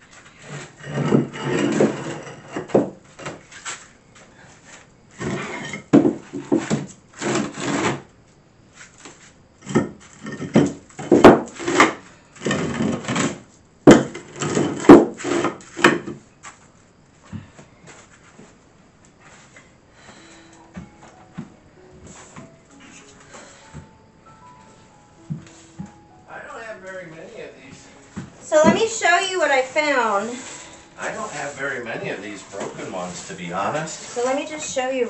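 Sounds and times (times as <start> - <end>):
tiles scraping on gritty floor: 0.0 - 3.9, 4.7 - 8.1, 8.8 - 16.6, 28.2 - 35.0.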